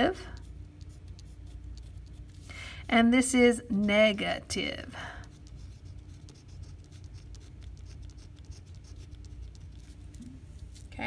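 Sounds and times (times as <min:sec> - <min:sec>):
pencil scratching on paper: 0:00.0 - 0:04.2, 0:05.2 - 0:10.1.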